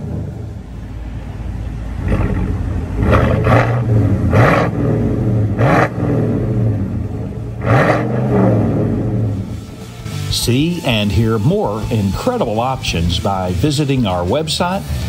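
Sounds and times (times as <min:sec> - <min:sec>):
engine revving: 0:00.0 - 0:15.0
pickup engine idling: 0:00.0 - 0:15.0.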